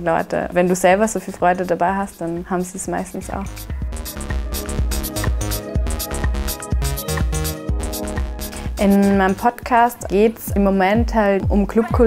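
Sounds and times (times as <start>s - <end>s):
house music with dance beat: 3.0s - 9.4s.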